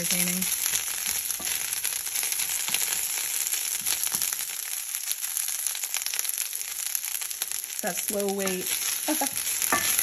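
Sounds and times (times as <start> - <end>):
leaves sizzling in a frying pan: 0.0 - 10.0
wooden spoon knocking: 9.3 - 10.0.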